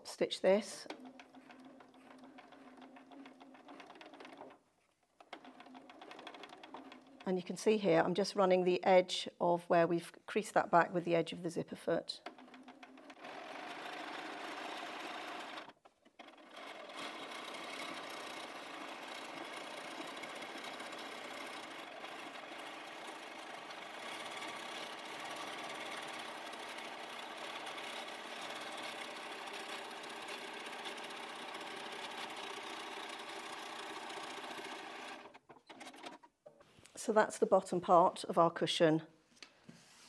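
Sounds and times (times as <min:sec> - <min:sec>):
sewing machine running: 0:00.5 - 0:07.3, 0:12.2 - 0:36.3.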